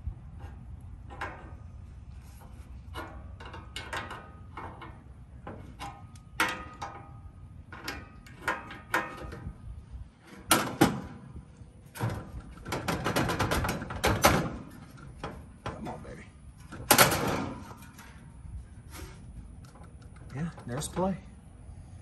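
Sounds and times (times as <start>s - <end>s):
metal clicks and knocks: 0.4s - 1.8s, 2.9s - 9.5s, 11.9s - 18.3s.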